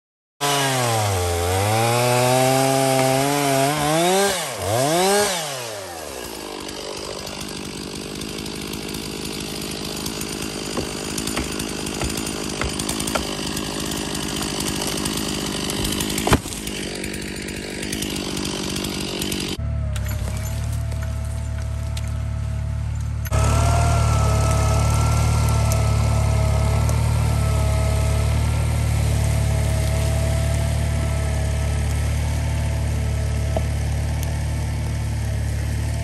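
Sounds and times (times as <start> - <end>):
chainsaw engine revving: 0.4 - 36.0.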